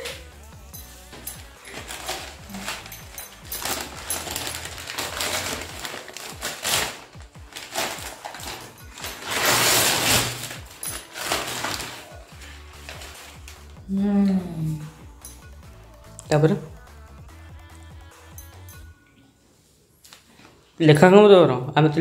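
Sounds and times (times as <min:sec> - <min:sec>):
wrapping paper crinkling and tearing: 0:01.2 - 0:13.8.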